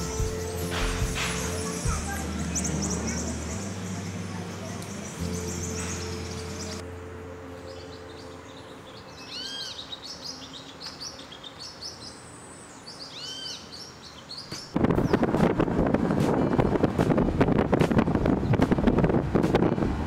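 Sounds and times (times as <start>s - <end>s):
birds chirping: 0.0s - 15.3s
wind buffeting microphone: 14.7s - 20.0s.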